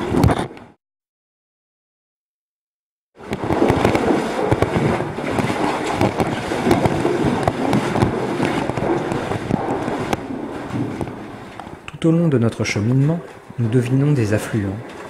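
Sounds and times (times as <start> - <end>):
knocks and clicks on rock: 3.3 - 11.7.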